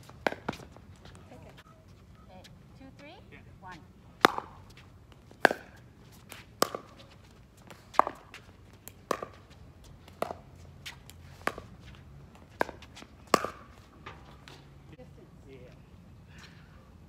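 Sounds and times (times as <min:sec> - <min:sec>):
paddles hitting plastic ball: 0:04.2 - 0:04.6, 0:06.6 - 0:07.0, 0:07.9 - 0:09.4, 0:12.6 - 0:13.6.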